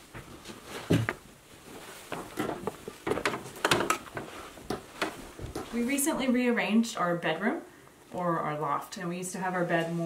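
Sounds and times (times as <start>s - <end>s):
footsteps on wooden stairs: 0.0s - 1.3s, 2.1s - 5.9s.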